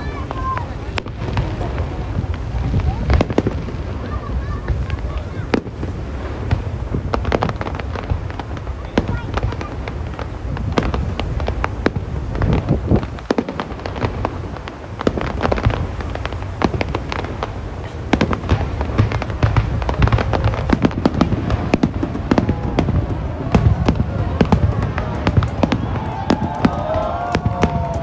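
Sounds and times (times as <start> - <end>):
fireworks cracking and popping: 0.0 - 28.0.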